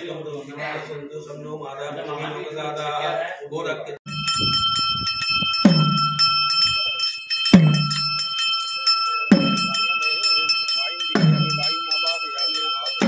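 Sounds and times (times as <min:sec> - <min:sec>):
brass hand bell ringing rapidly: 0:04.1 - 0:13.0
deep bell stroke: 0:04.1 - 0:13.0.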